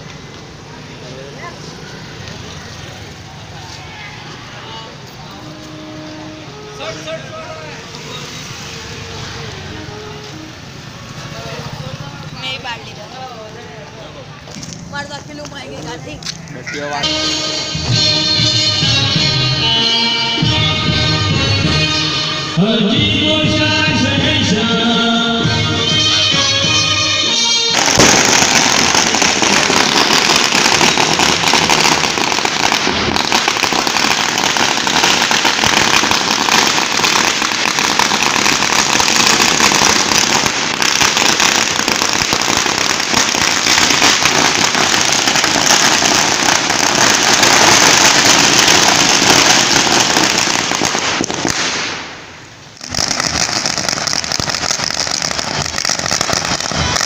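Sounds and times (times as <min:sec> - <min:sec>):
firecrackers rattling bangs: 0:25.9 - 0:57.0.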